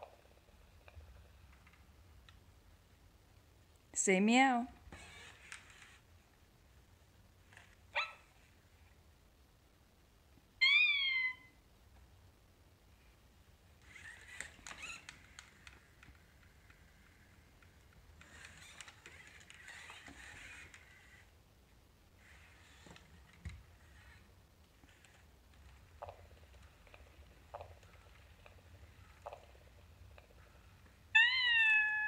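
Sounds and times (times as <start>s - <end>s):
electronic cat meow: 10.6s - 11.6s, 31.2s - 32.0s.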